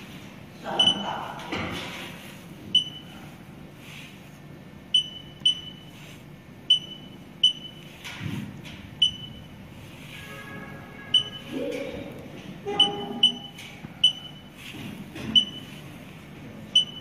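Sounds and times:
short high beeps: 11.0 - 11.6, 12.7 - 14.5.

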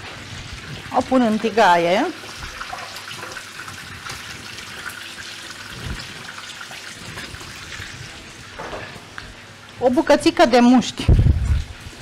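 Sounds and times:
onion sizzling in hot oil: 0.0 - 10.4
ribs frying in a pan: 0.0 - 12.0.

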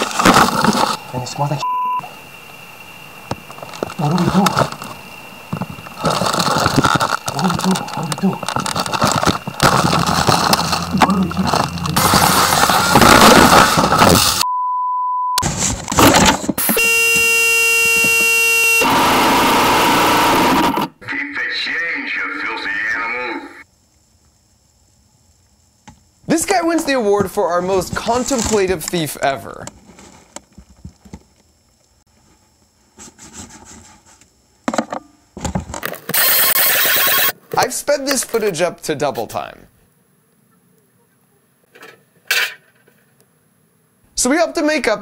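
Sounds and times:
package handling rubbing: 0.0 - 1.1, 3.2 - 14.4
censor bleep: 1.6 - 2.1, 14.4 - 15.4.

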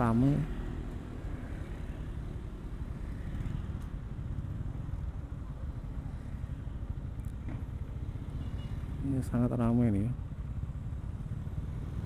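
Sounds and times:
motorcycles and scooters running: 0.0 - 12.0
motorcycle engine idling: 3.6 - 12.0.

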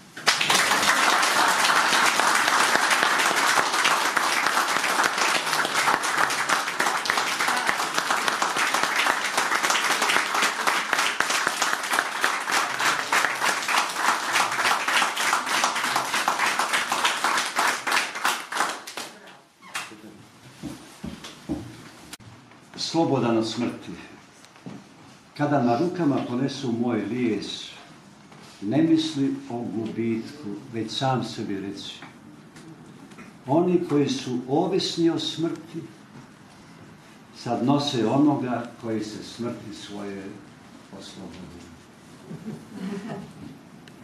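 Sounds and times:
audience applauding: 0.0 - 19.2.

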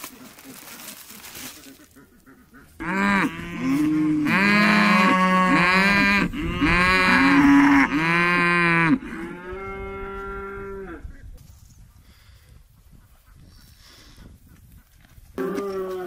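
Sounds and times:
cattle mooing: 2.8 - 11.0, 15.4 - 16.0.

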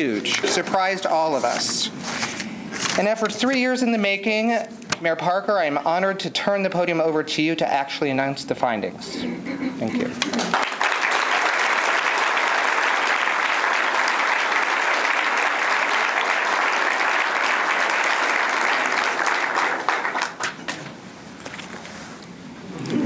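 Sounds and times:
crowd applauding: 10.2 - 20.9.

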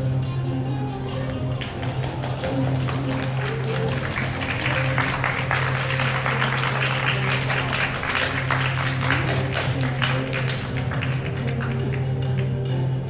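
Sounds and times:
music playing: 0.0 - 13.0
audience applause: 1.6 - 12.2.

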